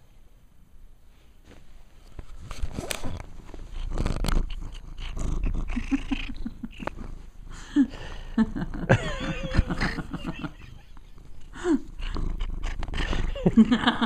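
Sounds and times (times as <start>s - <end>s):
cat purring: 2.6s - 7.6s, 8.2s - 14.0s.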